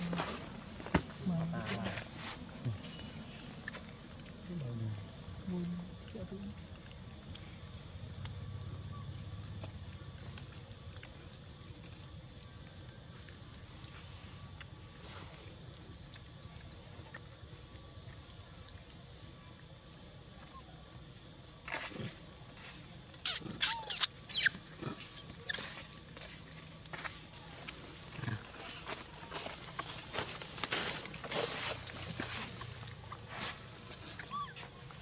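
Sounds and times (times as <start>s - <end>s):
insects droning: 0.0s - 35.0s
shrill macaque calls: 23.2s - 24.6s, 34.2s - 34.7s.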